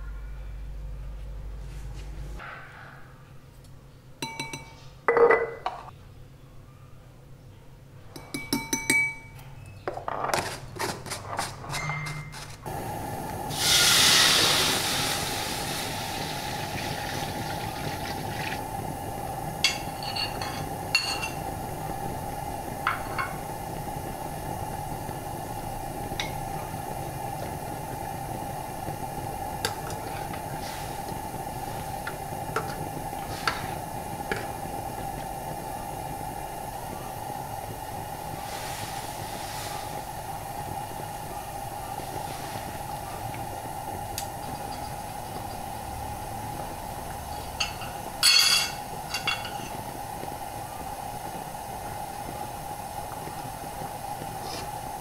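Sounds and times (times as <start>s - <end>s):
utensils clinking against wok: 4.2s - 5.9s, 8.1s - 12.6s, 19.7s - 21.5s, 47.5s - 49.8s
low hiss: 12.7s - 55.0s
water pouring into metal wok: 13.5s - 18.6s.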